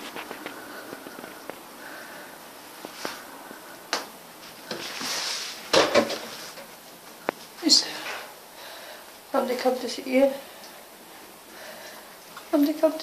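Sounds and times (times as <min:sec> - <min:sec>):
cat scuffling: 0:04.4 - 0:08.3.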